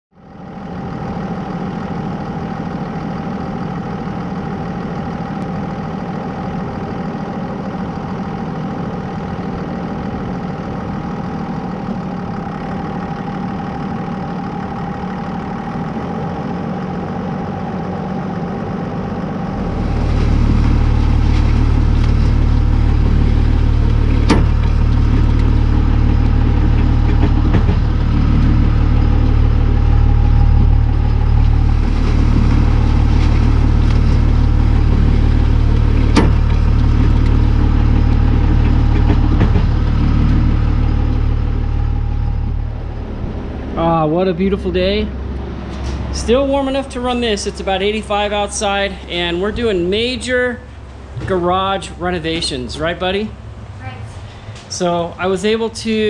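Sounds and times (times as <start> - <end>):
vehicle engine running: 0.1 - 56.0
low rumble of tire dragging on dirt: 0.2 - 56.0.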